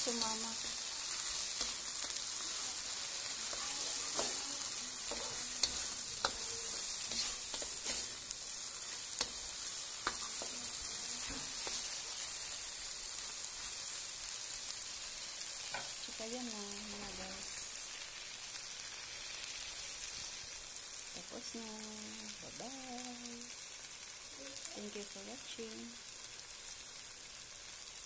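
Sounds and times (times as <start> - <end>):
food sizzling in a wok: 0.0 - 28.0
spatula scraping a pan: 0.1 - 12.4.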